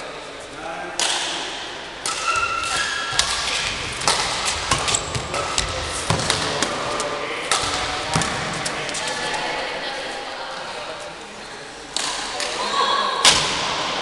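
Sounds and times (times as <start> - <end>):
racket hitting shuttlecock: 1.0 - 9.0.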